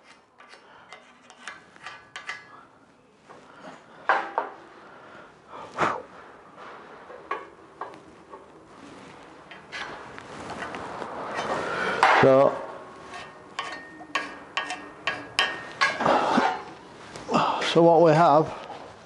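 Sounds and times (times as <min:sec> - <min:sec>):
metal scraping: 0:00.0 - 0:02.5, 0:06.5 - 0:17.1.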